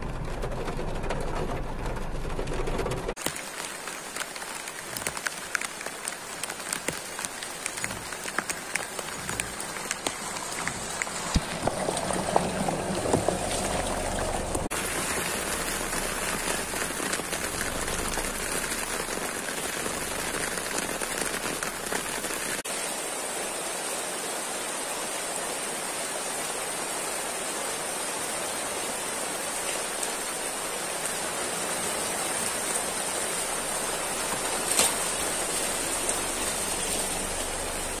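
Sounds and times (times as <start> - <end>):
rain falling on leaves: 0.0 - 38.0
car driving through mud: 10.1 - 22.4.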